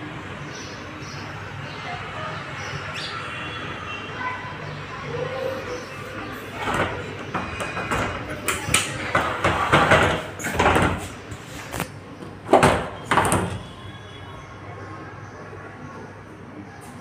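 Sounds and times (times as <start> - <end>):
sliding window scraping and rattling: 5.8 - 13.7.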